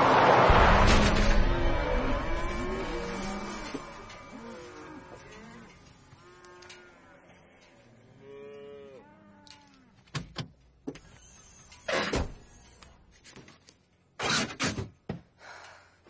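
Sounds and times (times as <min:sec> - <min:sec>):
loud scraping burst: 0:00.0 - 0:05.2
long arching tones: 0:00.0 - 0:08.5.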